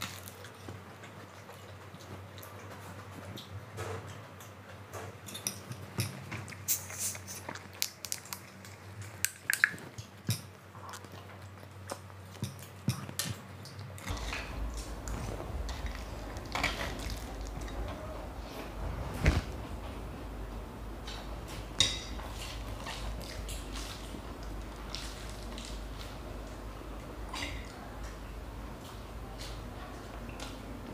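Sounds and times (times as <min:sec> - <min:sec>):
low steady hum: 0:05.3 - 0:30.9
chewing and mouth sounds: 0:06.1 - 0:18.0.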